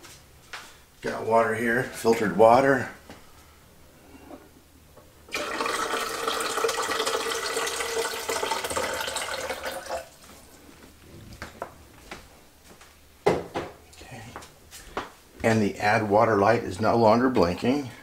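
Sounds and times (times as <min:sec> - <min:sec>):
water pouring into plastic reservoir: 0:05.3 - 0:10.5.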